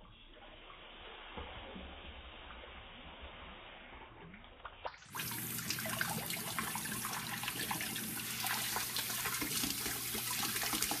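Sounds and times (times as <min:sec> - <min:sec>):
tap water splashing into metal pot: 0:04.9 - 0:11.0.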